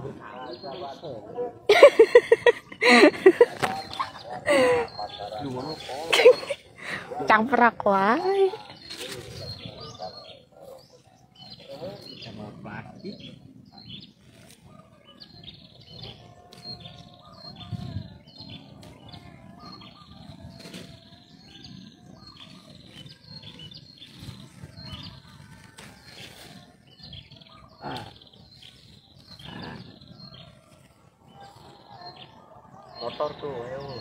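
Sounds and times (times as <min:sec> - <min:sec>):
small birds chirping: 0:00.0 - 0:34.0
leafy plants rustling: 0:07.9 - 0:10.1, 0:16.0 - 0:29.7.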